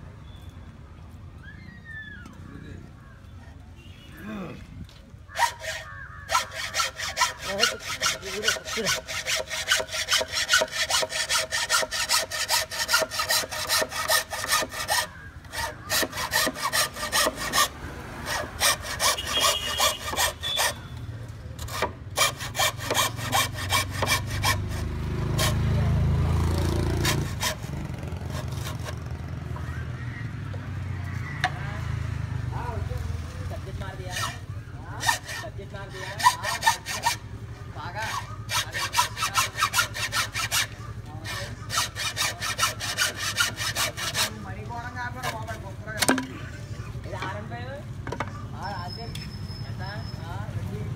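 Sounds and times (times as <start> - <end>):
hacksaw cutting bamboo: 5.3 - 20.9, 21.6 - 25.9, 26.6 - 29.1, 33.8 - 46.5.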